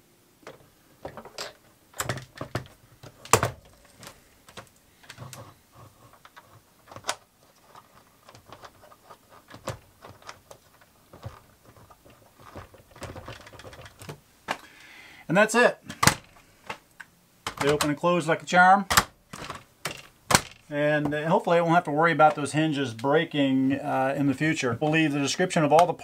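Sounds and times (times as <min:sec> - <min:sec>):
plastic door clicks and knocks: 0:00.4 - 0:03.8, 0:09.4 - 0:11.8, 0:12.4 - 0:14.2, 0:17.4 - 0:18.0, 0:18.9 - 0:20.7.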